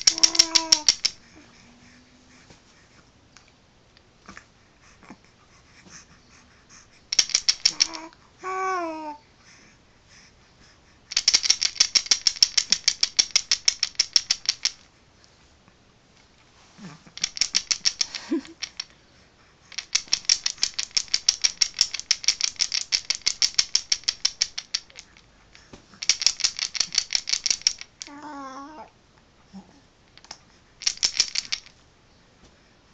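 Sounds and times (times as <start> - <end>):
bead rattle shaking: 0.0 - 1.5, 7.1 - 8.1, 11.1 - 14.9, 17.2 - 18.9, 19.7 - 25.2, 26.0 - 28.1, 30.8 - 31.8
baby cooing: 0.0 - 2.4, 7.7 - 9.2, 28.0 - 28.9.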